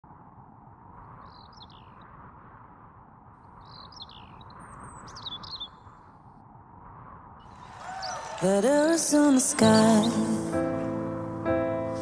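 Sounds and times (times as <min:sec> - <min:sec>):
birds chirping: 0:01.1 - 0:02.3, 0:03.4 - 0:06.3, 0:07.4 - 0:12.0.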